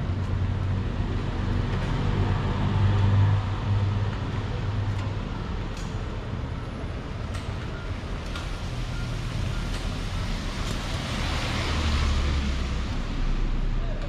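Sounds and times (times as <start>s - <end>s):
vehicle passing on wet street: 0.6s - 4.9s, 8.1s - 13.8s.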